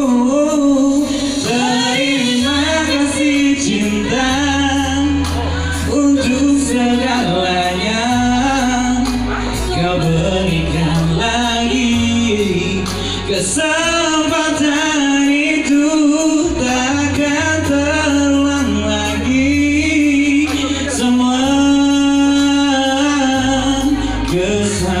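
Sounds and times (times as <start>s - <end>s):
slow ballad on electronic keyboard: 0.0s - 25.0s.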